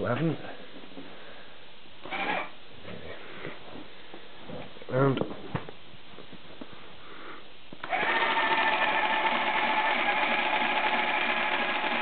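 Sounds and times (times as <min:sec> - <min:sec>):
relay computer mechanical chatter: 0:07.9 - 0:12.0.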